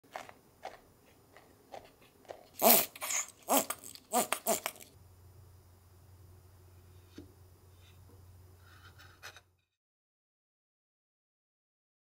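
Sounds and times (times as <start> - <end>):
squeaky cornstarch crunches: 0.1 - 5.0.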